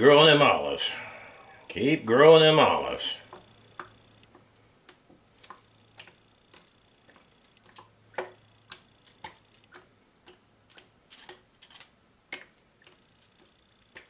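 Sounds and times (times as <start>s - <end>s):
oil drizzling ticks: 3.2s - 14.0s.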